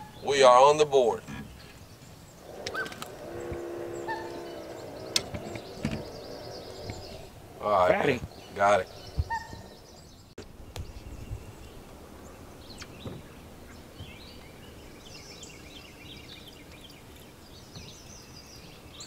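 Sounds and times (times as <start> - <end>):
songbird chirping: 0.0 - 19.0
faint clicks: 2.4 - 7.3.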